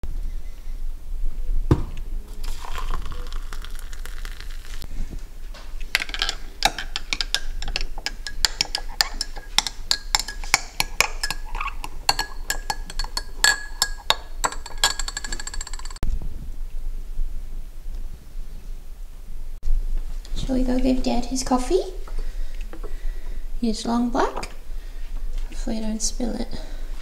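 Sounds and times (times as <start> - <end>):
hot water pouring into a mug: 2.3 - 4.8
teaspoon clinking in a cup: 2.4 - 4.6, 6.0 - 16.0.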